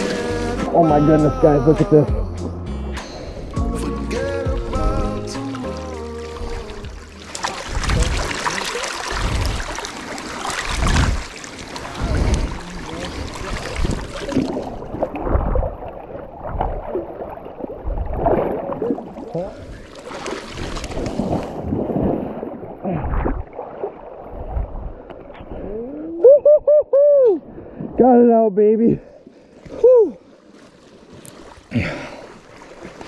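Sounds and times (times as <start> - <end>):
legs splashing through water: 1.9 - 25.8, 29.4 - 33.0
wind on microphone: 7.6 - 8.4, 9.1 - 9.9, 10.6 - 11.3, 11.9 - 17.0, 24.3 - 25.8.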